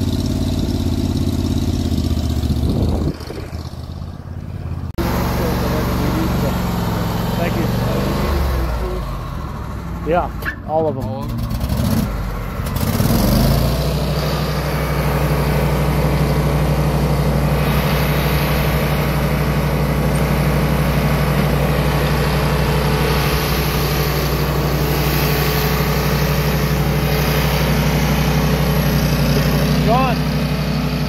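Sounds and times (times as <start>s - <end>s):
stump grinder engine running: 0.0s - 31.0s.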